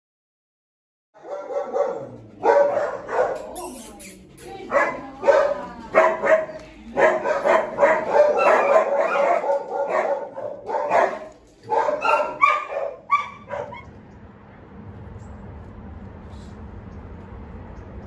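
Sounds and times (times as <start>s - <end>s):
dog barking: 1.2s - 3.6s, 4.7s - 13.9s.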